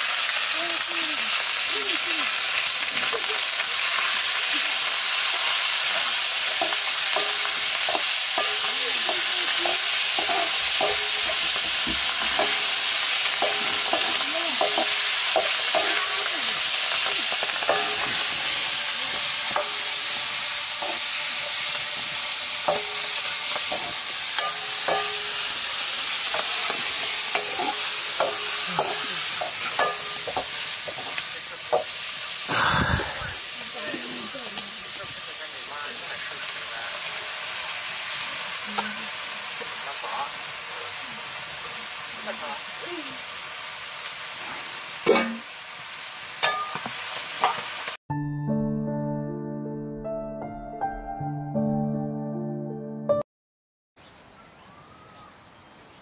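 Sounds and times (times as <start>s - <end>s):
food sizzling in a wok: 0.0s - 48.0s
metal ladle scraping a pan: 3.9s - 32.4s.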